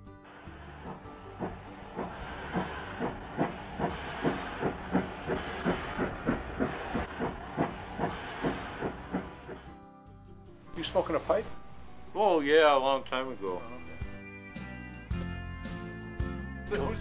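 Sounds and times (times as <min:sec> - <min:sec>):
steam locomotive exhaust chuffing: 0:00.3 - 0:09.8
steady hiss of steam: 0:00.4 - 0:09.7.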